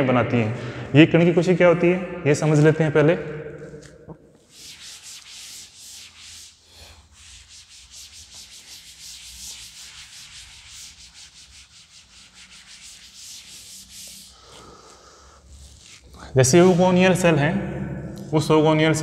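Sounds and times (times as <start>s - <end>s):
cloth rubbing chalkboard: 4.4s - 16.8s.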